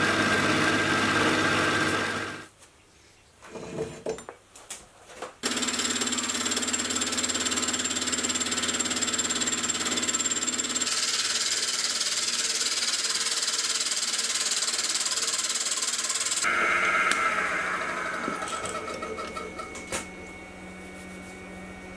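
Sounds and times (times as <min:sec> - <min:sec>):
milling machine motor under load: 0:10.6 - 0:19.9.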